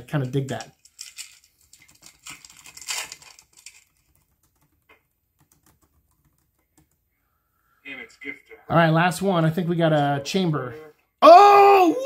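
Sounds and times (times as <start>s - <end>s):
cards clicking and rustling: 0.0s - 6.9s
foil pack crinkling and tearing: 0.8s - 3.9s.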